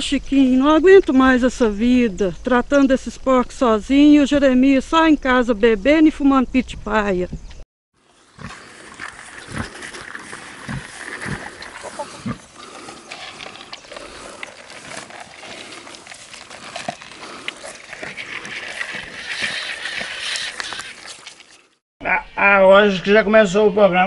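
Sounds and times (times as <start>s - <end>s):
pig grunting and feeding: 8.0s - 21.8s.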